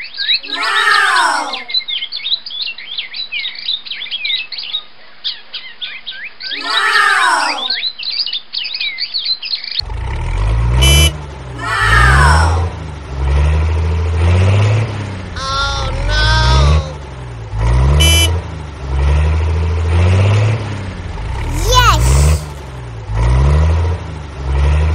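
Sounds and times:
tractor engine sound effect: 9.8s - 24.9s
sliding cartoon-like tones: 10.8s - 12.9s, 15.3s - 17.0s, 21.4s - 22.7s.

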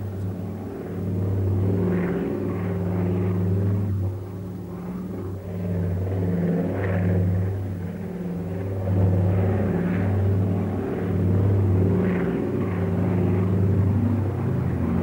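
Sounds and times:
piston aircraft engines droning: 0.0s - 15.0s.

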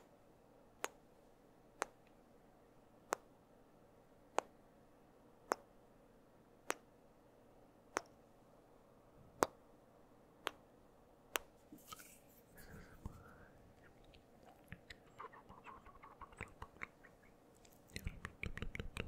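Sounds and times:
tongue clicks: 13.8s - 19.0s.

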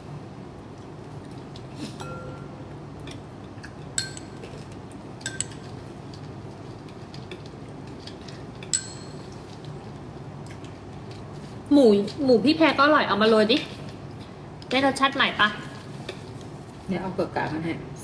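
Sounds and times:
faint room hum: 0.0s - 18.0s
metal spoon clinking on ceramic: 4.0s - 4.4s, 5.2s - 5.7s, 8.7s - 9.2s.

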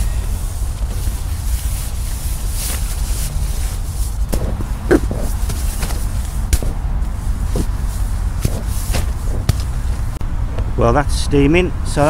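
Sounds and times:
steady low rumble: 0.0s - 10.8s
sleeping bag rustling: 0.6s - 10.2s.

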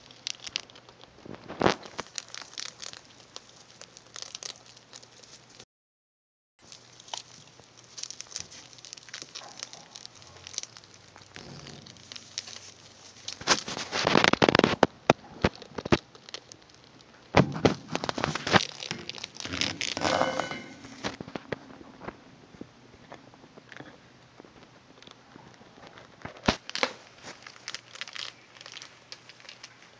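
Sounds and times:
rats gnawing food: 0.0s - 5.6s, 6.6s - 29.9s
rats rustling in bedding: 0.0s - 5.6s, 6.6s - 17.0s, 17.6s - 21.6s, 25.3s - 29.9s.

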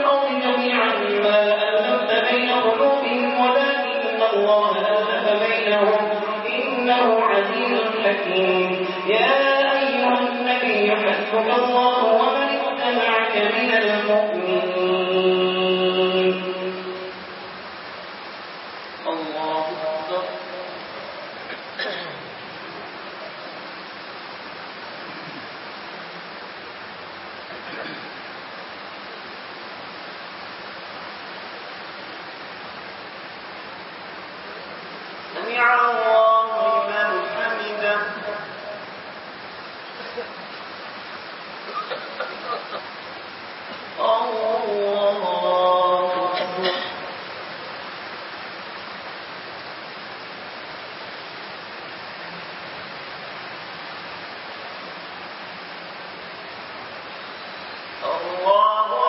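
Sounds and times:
steady hiss: 0.0s - 59.0s.

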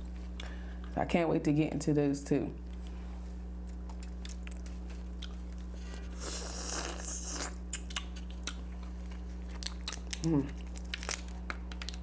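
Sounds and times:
chewing with mouth clicks: 3.6s - 12.0s.

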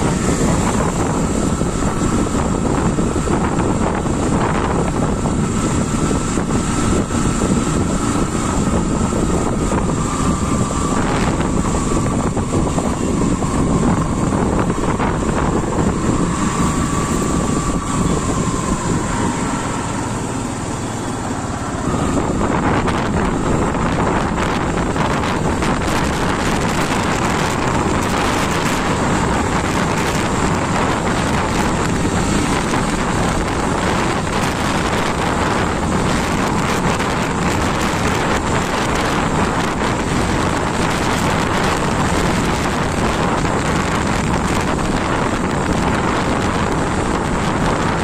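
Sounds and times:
motorcycle engine: 0.0s - 48.0s
road noise: 0.0s - 48.0s
thin whine: 0.0s - 48.0s
wind buffeting microphone: 0.0s - 48.0s.

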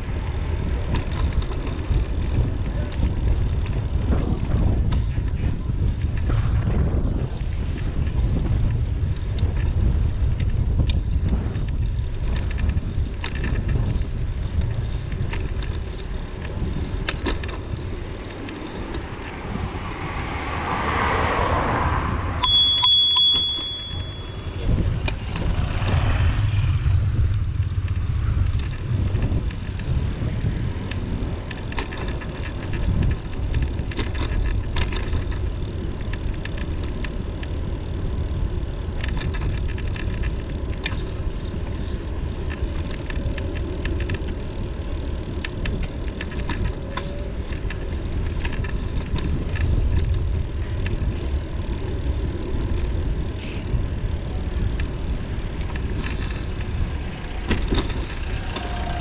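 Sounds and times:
wind rumbling on microphone: 0.0s - 59.0s
vehicle passing: 15.8s - 22.5s, 23.9s - 31.4s
high ringing tone: 22.4s - 24.8s.

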